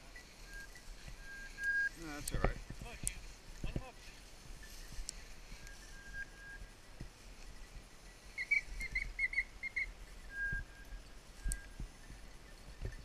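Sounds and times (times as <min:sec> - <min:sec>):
high-pitched whistle tones: 0:00.0 - 0:02.2, 0:04.6 - 0:06.8, 0:07.5 - 0:13.0.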